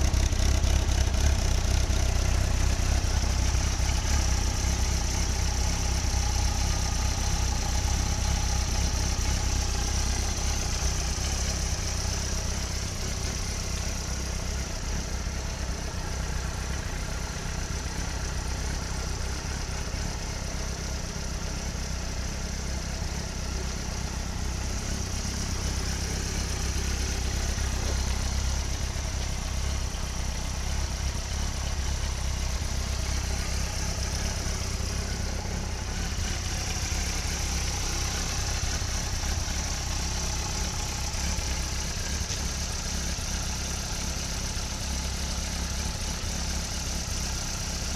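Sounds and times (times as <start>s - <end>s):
motorcycle engine idling: 0.0s - 47.9s.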